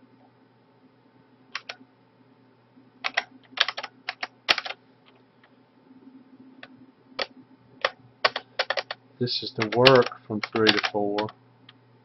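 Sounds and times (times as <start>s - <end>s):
faint low hum: 0.0s - 12.0s
keyboard typing: 1.6s - 1.8s, 3.0s - 4.8s, 7.2s - 11.3s.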